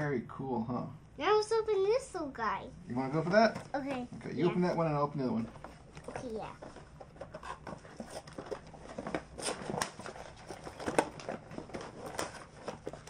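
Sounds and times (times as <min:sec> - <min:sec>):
toy packaging rustling: 0:05.4 - 0:13.0.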